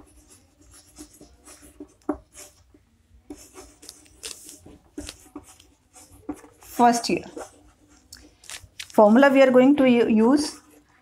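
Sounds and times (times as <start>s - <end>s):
chalk tapping: 0.0s - 8.3s
chalk scratching on blackboard: 0.0s - 8.4s.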